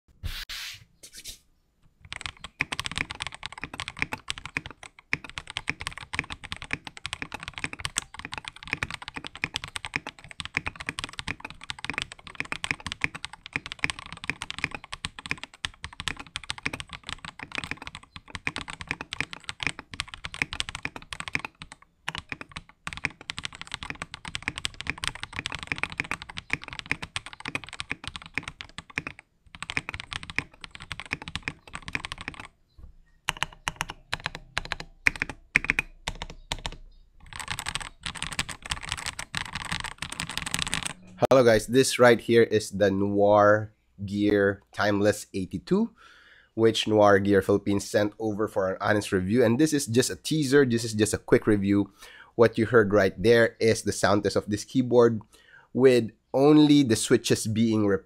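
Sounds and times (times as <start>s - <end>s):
mechanical keyboard typing: 2.1s - 32.6s, 33.3s - 41.2s.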